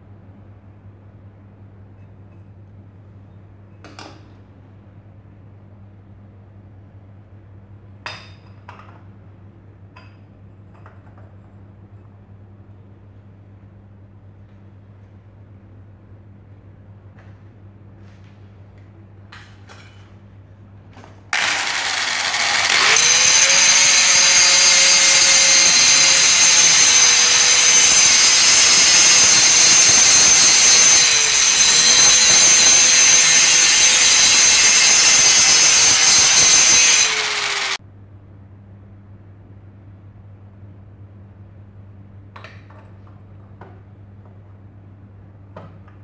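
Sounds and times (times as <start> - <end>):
angle grinder grinding metal: 21.4 - 37.8.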